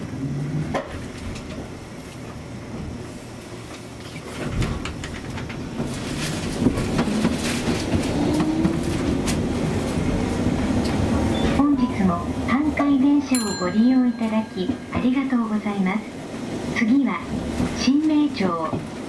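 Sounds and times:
tram rumble: 0.0 - 19.0
wheels clicking on rails: 3.7 - 11.1.

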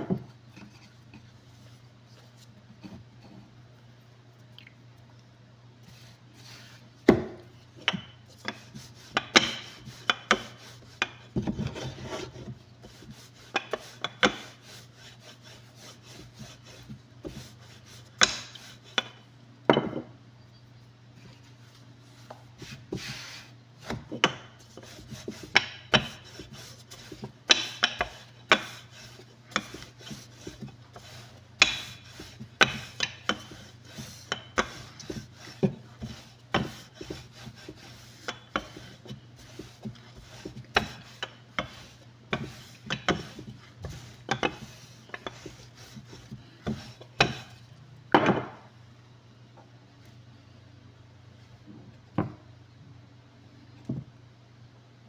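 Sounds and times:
rolling pin rolling dough: 5.8 - 19.9, 21.2 - 47.8
hands patting dough on wood: 7.0 - 19.2, 22.2 - 47.5.

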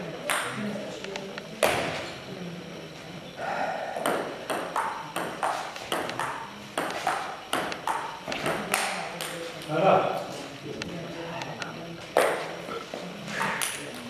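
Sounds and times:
table tennis ball clicks: 4.0 - 9.4.

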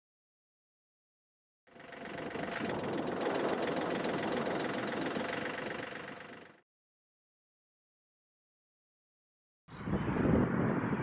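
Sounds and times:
tractor diesel engine idling: 1.7 - 6.6.

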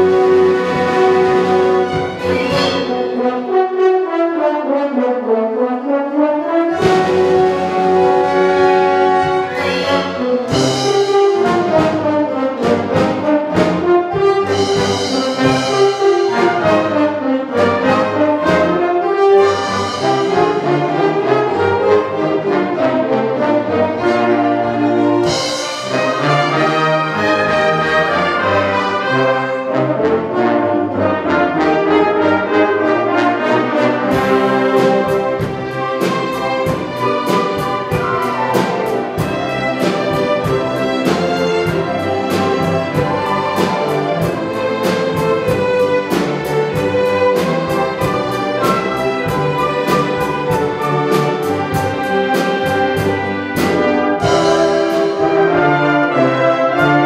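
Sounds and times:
brass section: 0.0 - 57.0
orchestra playing: 0.0 - 57.0
quick even percussion beat: 6.8 - 17.1, 25.2 - 26.7, 34.1 - 55.4.

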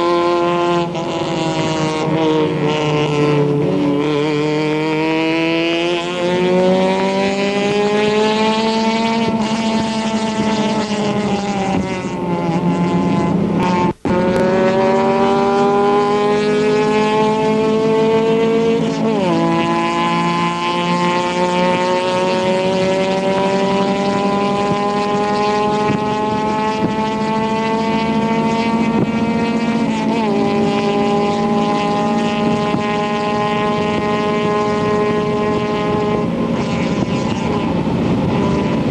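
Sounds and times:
race car engine revving: 0.0 - 38.9.

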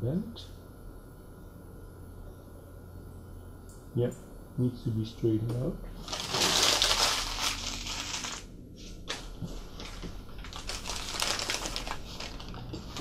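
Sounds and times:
newspaper rustling and crinkling: 6.0 - 8.5, 9.1 - 13.0.

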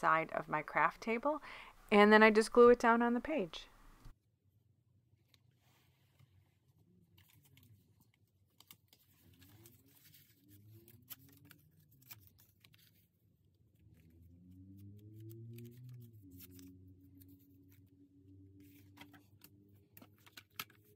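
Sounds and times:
paper rustling: 5.7 - 14.0.

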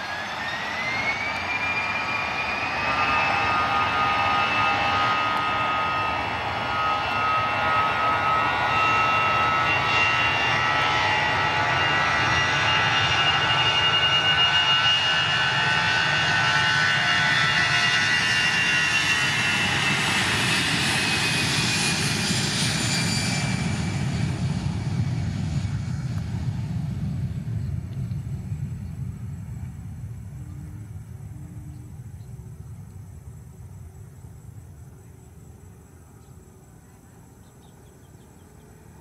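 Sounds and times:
jet engines at take-off power: 0.0 - 39.0
low rumble: 24.7 - 34.7.

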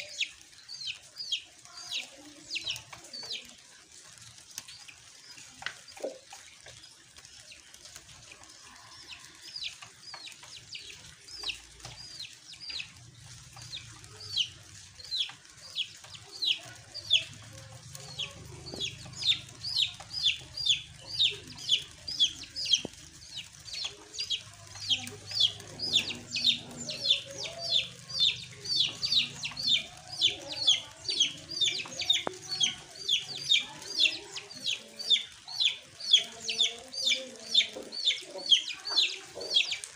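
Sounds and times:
bird peeping: 9.1 - 39.9.

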